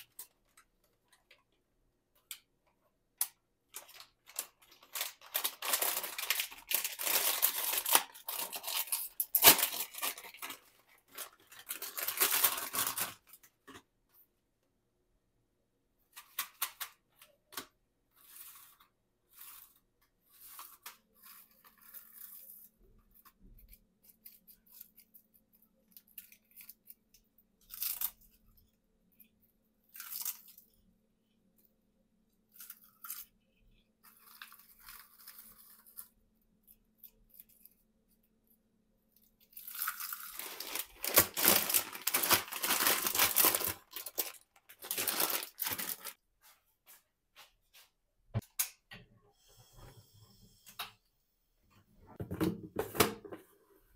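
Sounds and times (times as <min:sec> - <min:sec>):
plastic bag crinkling: 0:03.7 - 0:13.4, 0:39.6 - 0:46.2
seaweed and plastic tray crunching: 0:03.8 - 0:13.2, 0:39.5 - 0:46.2.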